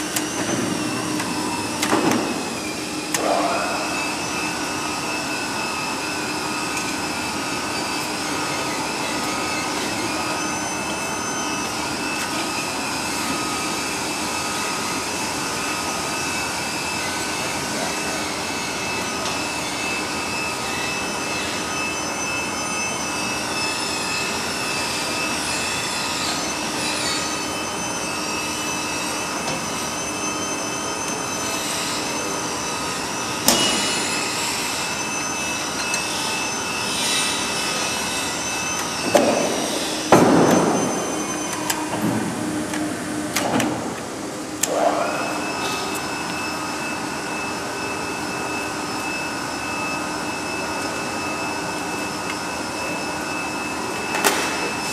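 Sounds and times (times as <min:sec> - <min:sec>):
motor whine: 0:00.0 - 0:54.9
paper cutter electric hum: 0:00.0 - 0:54.9.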